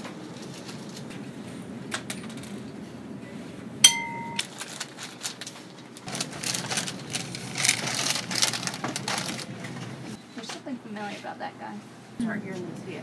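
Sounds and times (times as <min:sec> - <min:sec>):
paper bag rustling: 0:04.4 - 0:10.1.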